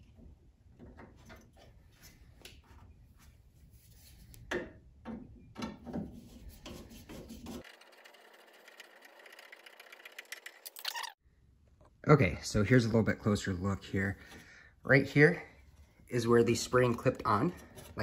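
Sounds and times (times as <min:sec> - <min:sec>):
hands rubbing and scraping parts: 0:01.5 - 0:04.5, 0:05.8 - 0:08.6, 0:15.7 - 0:18.0.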